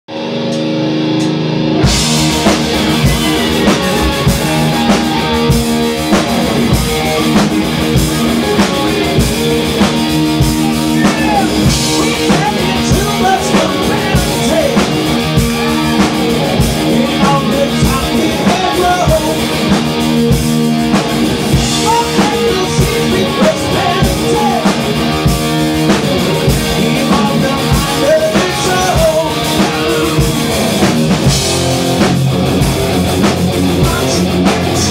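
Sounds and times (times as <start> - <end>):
heavy metal band playing: 0.1 - 34.9.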